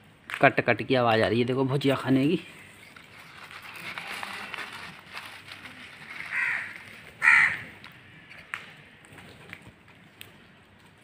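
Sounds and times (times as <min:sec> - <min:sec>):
crows pecking and crunching: 0:02.2 - 0:11.0
crow cawing: 0:06.2 - 0:08.4.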